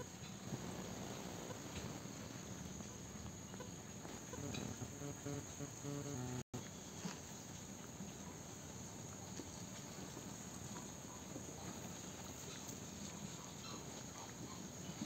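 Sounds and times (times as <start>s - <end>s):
crickets chirring: 0.0s - 11.2s.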